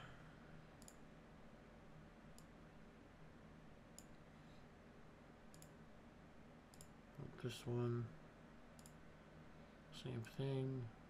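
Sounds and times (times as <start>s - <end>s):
low room hum: 0.0s - 11.0s
computer mouse clicks: 0.8s - 1.0s, 5.5s - 5.8s, 6.7s - 7.0s, 8.8s - 9.0s.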